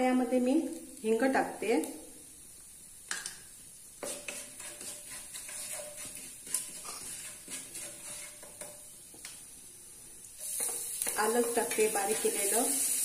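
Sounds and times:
spices sizzling in hot oil: 0:00.0 - 0:13.0
wooden spatula scraping frying pan: 0:04.0 - 0:08.9, 0:10.4 - 0:12.8.

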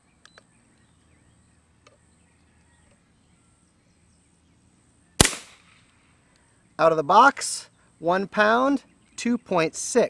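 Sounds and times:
air pistol hammer crack: 0:05.2 - 0:05.9.

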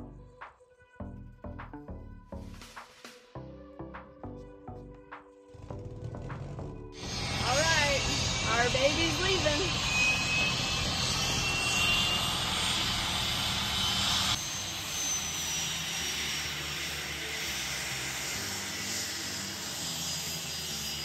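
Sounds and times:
jet engines whining: 0:06.9 - 0:21.0
high whine falling in pitch: 0:07.0 - 0:15.4.

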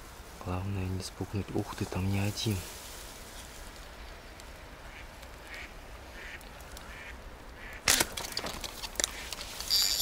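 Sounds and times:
clicks and rustling: 0:07.8 - 0:10.0.

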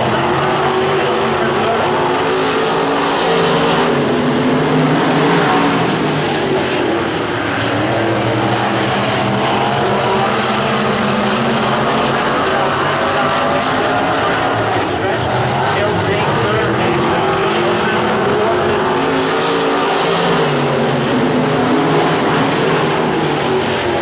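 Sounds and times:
race car engines roaring: 0:00.0 - 0:24.0.

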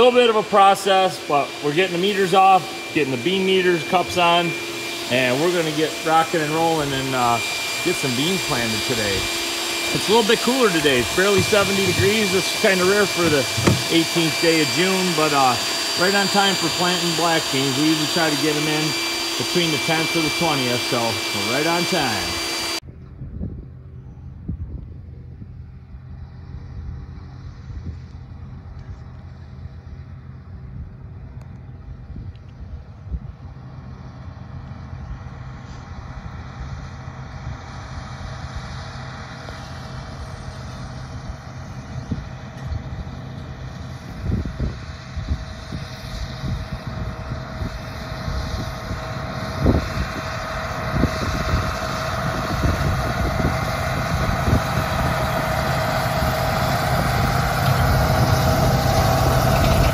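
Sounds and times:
tractor diesel engine under load: 0:00.0 - 0:22.8, 0:33.6 - 0:59.9
short low thumps: 0:11.0 - 0:14.3.

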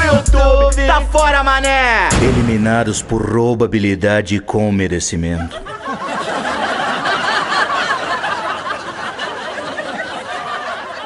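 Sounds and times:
group of people laughing: 0:05.2 - 0:11.0.

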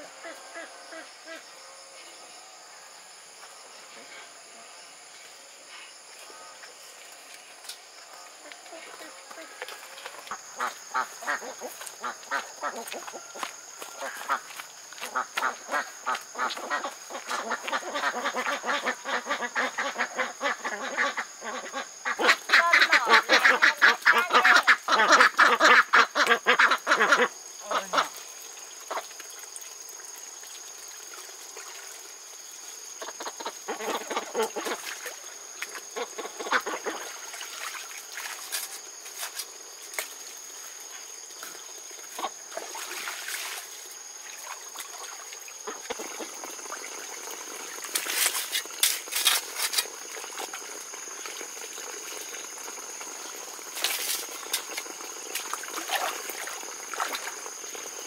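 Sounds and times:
ducks quacking: 0:10.3 - 0:13.3, 0:14.0 - 0:28.2, 0:33.0 - 0:34.9, 0:36.0 - 0:37.1.

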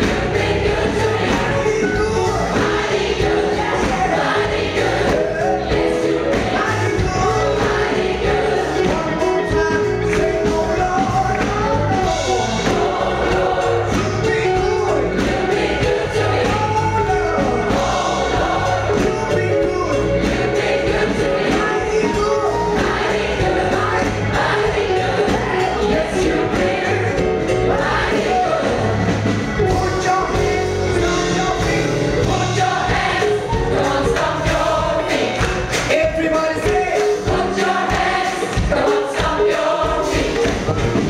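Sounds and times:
drums: 0:00.0 - 0:41.0
gospel choir singing: 0:00.0 - 0:41.0
piano: 0:00.0 - 0:41.0.

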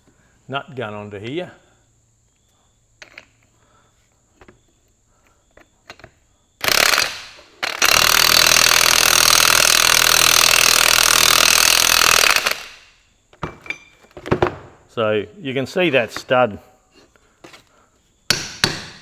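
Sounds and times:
impact wrench hammering: 0:18.3 - 0:19.0.

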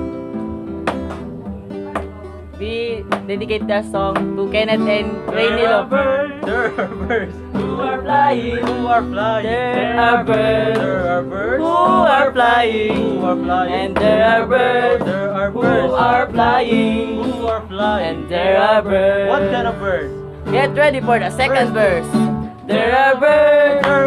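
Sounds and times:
acoustic guitar chords: 0:00.0 - 0:24.0
young men singing together: 0:05.2 - 0:20.2, 0:22.6 - 0:24.0.

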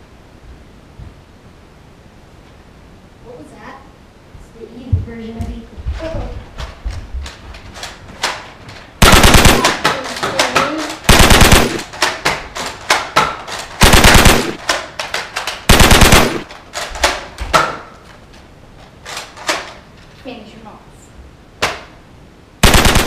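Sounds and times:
machine-gun fire bursts: 0:09.0 - 0:10.1, 0:11.0 - 0:12.1, 0:13.8 - 0:14.7, 0:15.6 - 0:16.5, 0:22.6 - 0:23.0
small clicks and knocks: 0:14.6 - 0:15.7.

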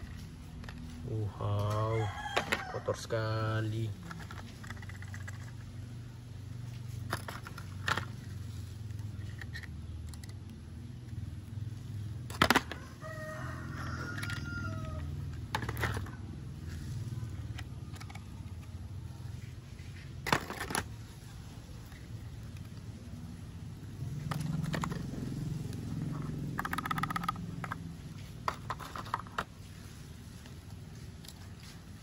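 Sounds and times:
plastic toy cars clacking: 0:00.0 - 0:12.9, 0:14.0 - 0:23.1, 0:24.1 - 0:32.0
rooster crowing: 0:01.7 - 0:03.3, 0:12.6 - 0:15.3.

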